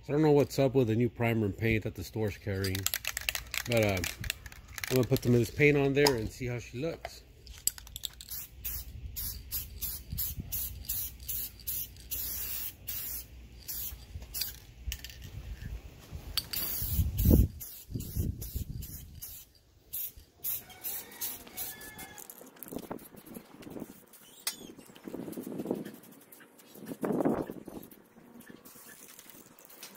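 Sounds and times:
spray can hissing: 7.5s - 15.0s, 16.4s - 26.8s, 28.5s - 29.9s.

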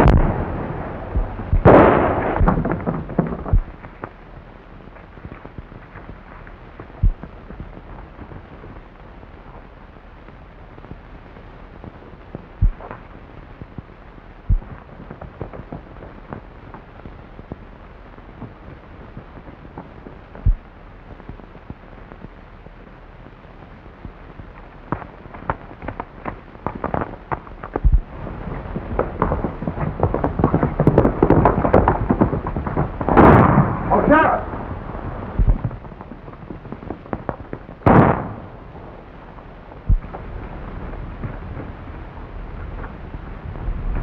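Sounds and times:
gunshots: 0.0s - 3.8s, 29.1s - 34.7s, 35.3s - 35.8s, 37.2s - 38.8s
film soundtrack hiss and crackle: 0.0s - 44.0s
sharp clicks and cracks: 0.0s - 44.0s.

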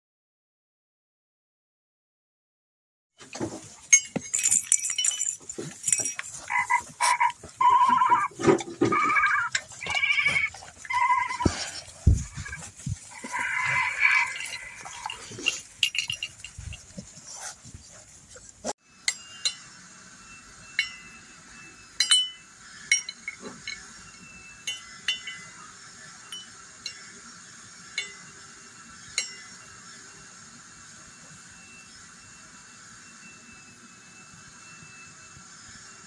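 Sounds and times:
scuffling and bumps: 3.2s - 18.7s
metal cups clinking: 3.9s - 11.5s, 13.2s - 16.9s.

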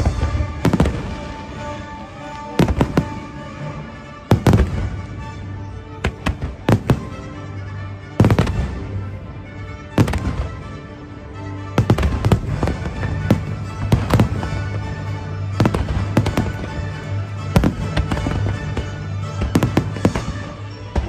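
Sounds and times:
fireworks bangs: 0.0s - 3.4s, 11.8s - 21.0s
music: 0.0s - 21.0s.

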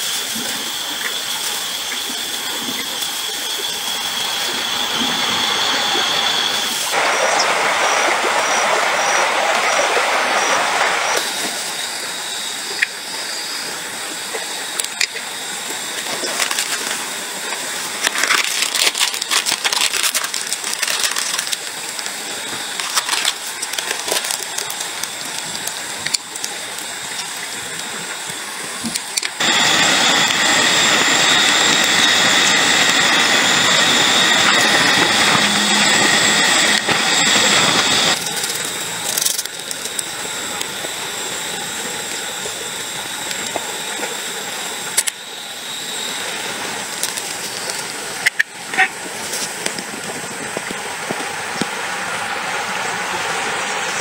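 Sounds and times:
insect drone: 0.0s - 54.0s
backpack rustling and clicks: 18.0s - 25.1s.

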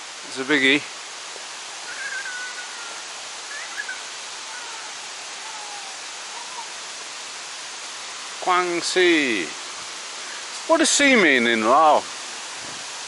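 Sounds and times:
waterfall rushing: 0.0s - 13.0s
faint whistled bird calls: 1.8s - 6.8s.

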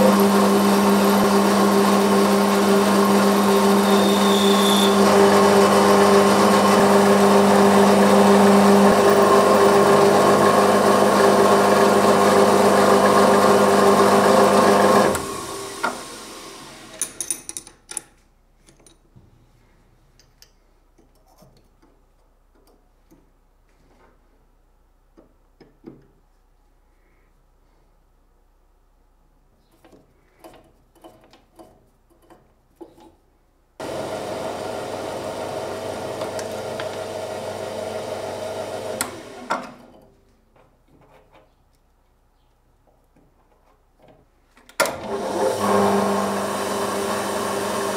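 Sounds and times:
metal lathe whining: 0.0s - 17.1s, 33.8s - 39.9s, 44.8s - 47.9s.

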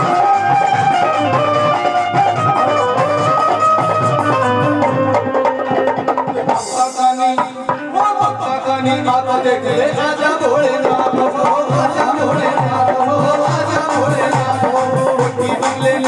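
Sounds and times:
hand drum beat: 0.0s - 16.0s
man singing: 6.4s - 16.0s.

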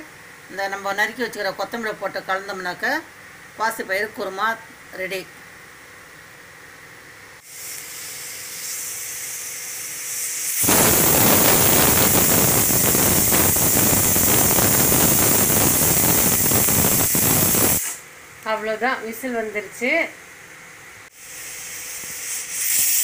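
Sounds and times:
pressure cooker whistling steam: 7.4s - 18.0s, 21.1s - 23.0s.

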